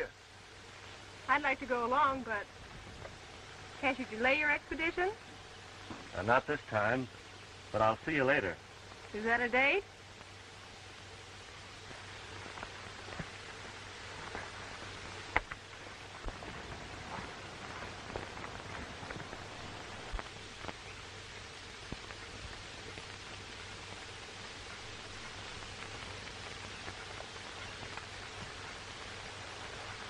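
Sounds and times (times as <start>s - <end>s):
film soundtrack hiss and hum: 0.0s - 30.0s
faint clicks and pops: 15.2s - 30.0s.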